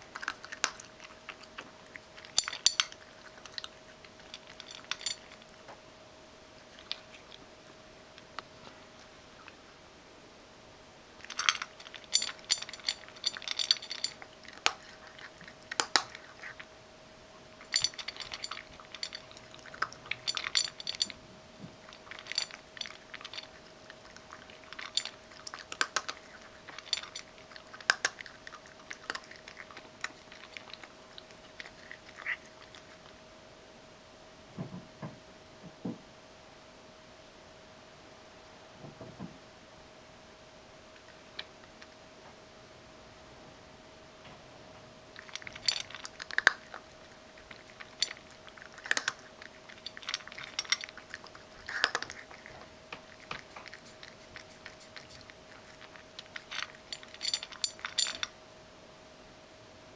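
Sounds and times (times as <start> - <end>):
cat crunching dry kibble: 0.0 - 5.7, 6.6 - 9.2, 11.2 - 16.8, 17.4 - 33.2, 41.0 - 42.0, 45.1 - 58.4.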